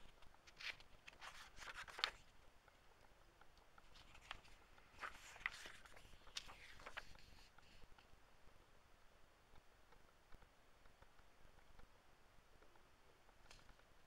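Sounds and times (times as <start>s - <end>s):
book pages rustling: 0.0s - 2.4s, 3.8s - 7.8s.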